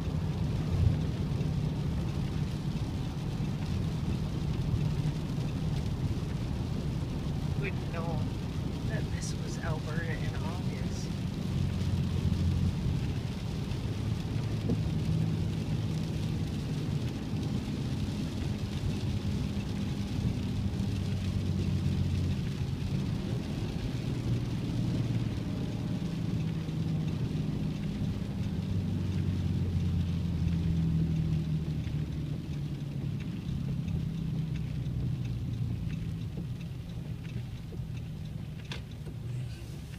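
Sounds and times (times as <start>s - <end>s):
car engine and tyre hum: 0.0s - 39.9s
rain and road spray hiss: 0.0s - 39.9s.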